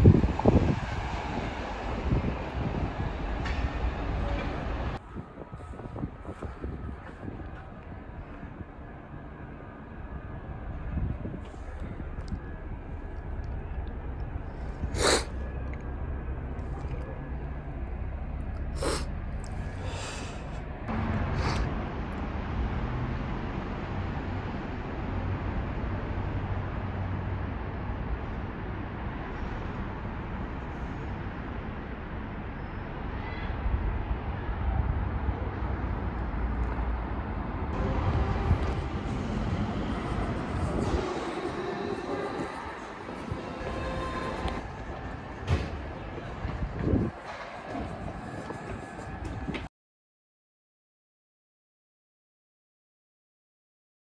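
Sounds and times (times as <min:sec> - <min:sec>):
low town background rumble: 0:00.0 - 0:49.7.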